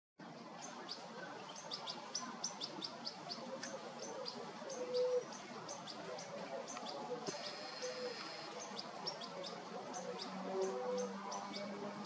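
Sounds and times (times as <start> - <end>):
young bird begging calls: 7.3 - 8.6.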